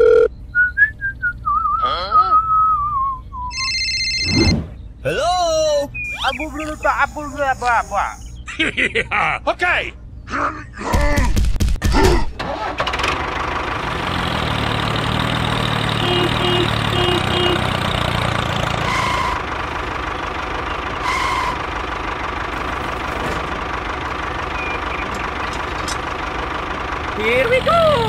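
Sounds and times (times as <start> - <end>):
short beeps: 3.5 - 4.8, 5.9 - 8.4
tractor engine idling: 5.0 - 8.5, 12.4 - 28.0.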